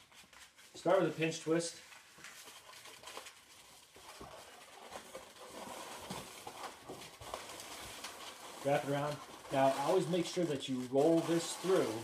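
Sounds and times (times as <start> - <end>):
balloons rubbing and squeaking: 0.0 - 12.0.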